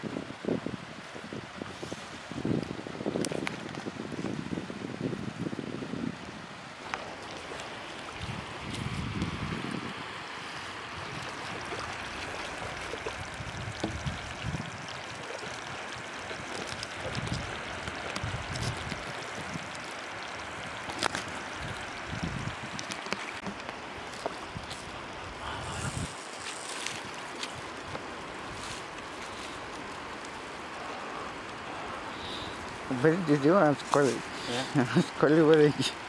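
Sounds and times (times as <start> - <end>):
wind on microphone: 0.0 - 35.1
water washing over sand: 0.0 - 36.0.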